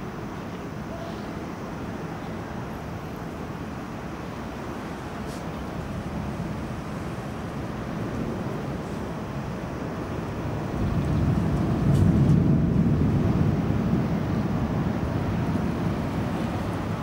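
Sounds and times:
rolling thunder: 5.9 - 17.0.

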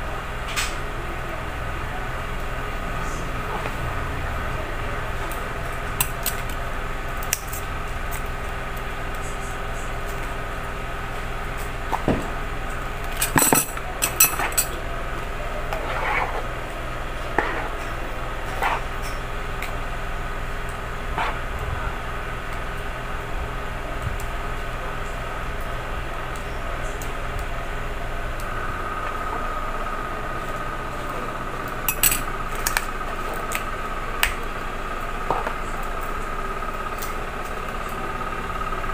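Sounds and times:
steady hum: 0.0 - 38.9
metal spoons clinking on plastic cups: 13.2 - 14.7, 31.9 - 32.2.

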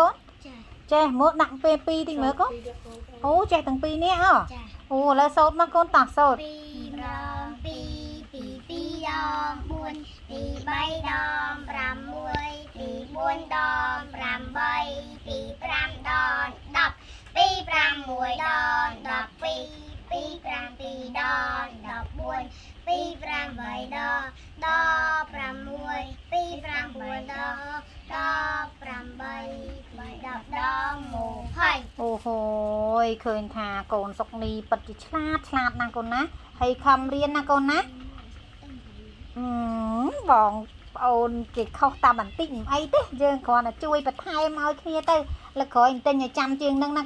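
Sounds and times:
child singing: 6.4 - 31.9.

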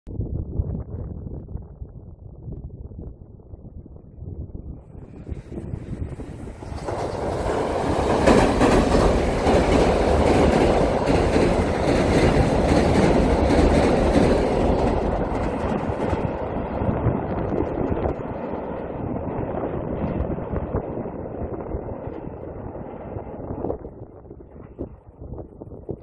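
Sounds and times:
bridge deck rumbling: 4.4 - 26.0
train wheels clacking: 6.6 - 16.5.

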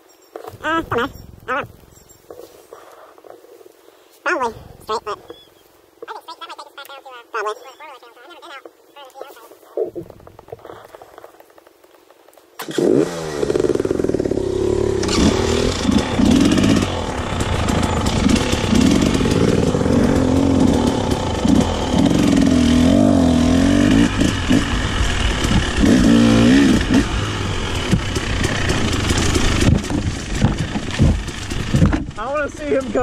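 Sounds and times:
dirt bike engine revving: 0.5 - 2.1, 12.6 - 33.0.

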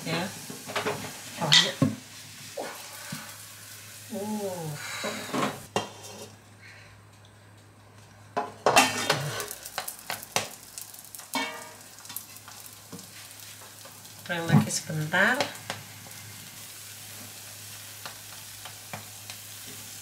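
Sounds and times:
frying sizzle: 0.0 - 20.0
wooden spatula scraping frying pan: 4.9 - 6.4.

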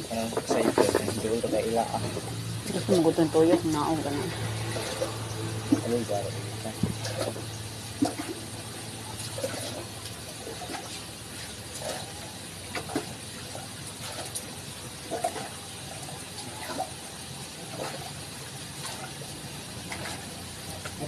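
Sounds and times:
water sloshing and splashing: 0.0 - 21.0.

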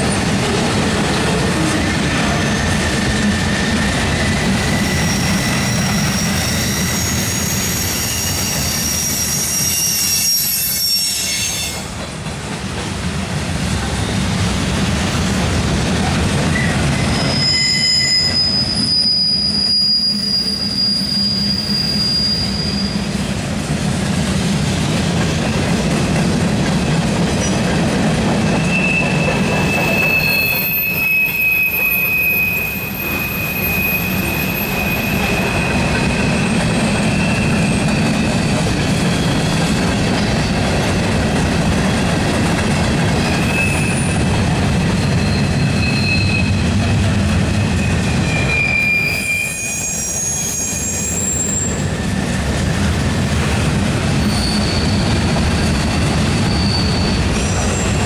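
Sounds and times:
train wheels rumbling on rails: 0.0 - 58.0
high wheel squeal: 2.3 - 11.9, 16.5 - 23.2, 28.5 - 40.7, 43.2 - 44.3, 44.9 - 46.8, 47.5 - 52.3, 54.2 - 58.0
low wheel squeal: 3.5 - 11.8, 16.5 - 23.1, 28.6 - 40.5, 43.2 - 44.2, 45.0 - 46.7, 47.5 - 52.2, 54.2 - 58.0.

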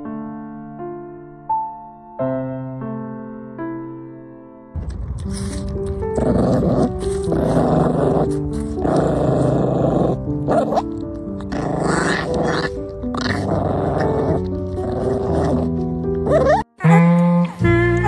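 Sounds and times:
background music: 4.1 - 18.0
dog growling: 5.2 - 17.5.

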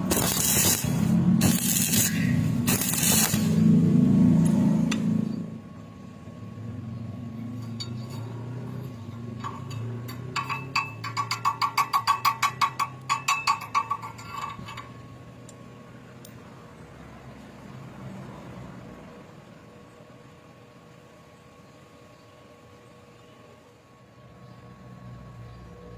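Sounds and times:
chipping hammer tapping metal: 0.0 - 3.7, 9.3 - 14.9.

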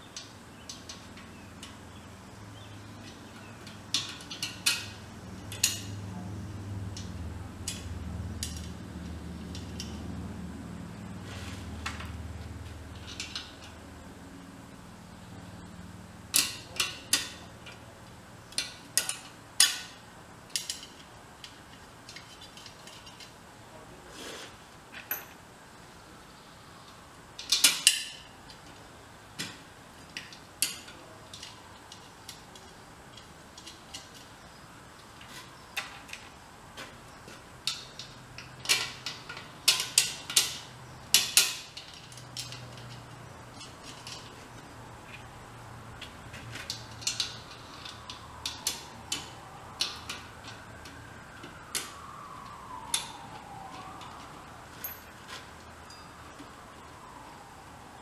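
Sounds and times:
metal hardware clinking: 25.0 - 25.4, 54.8 - 56.2.

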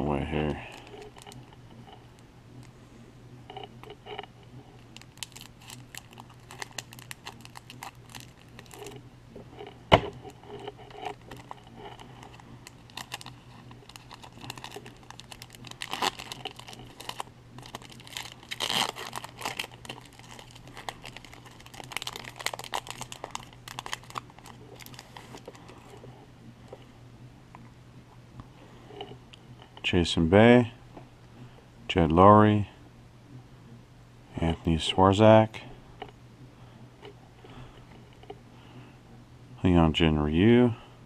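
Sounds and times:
faint low hum: 0.0 - 41.0
foil wrapper crinkling and tearing: 0.4 - 1.5, 4.8 - 9.0, 9.9 - 26.0.

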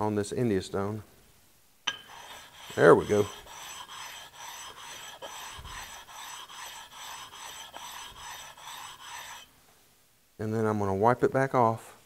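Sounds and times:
stone scraping on metal: 1.9 - 9.5.

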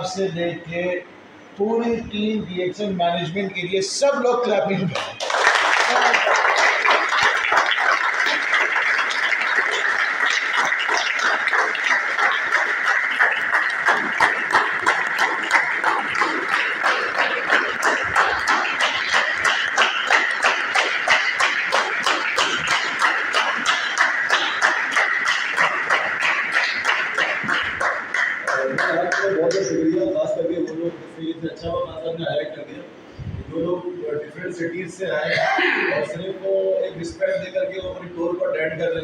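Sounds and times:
people clapping: 4.8 - 30.8.

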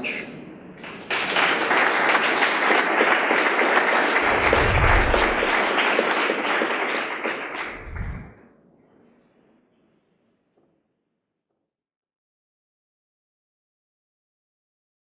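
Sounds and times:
audience applauding: 0.8 - 8.3
low thumps: 4.2 - 5.5, 7.7 - 8.3.

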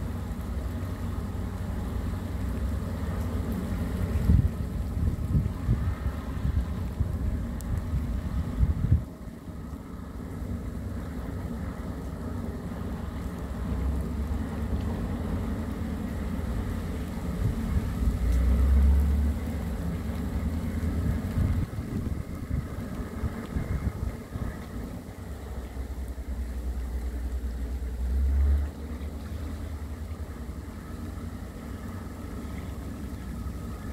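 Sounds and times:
dredger engine rumbling: 0.0 - 33.9
wind buffeting microphone: 3.9 - 11.9, 15.6 - 26.5.

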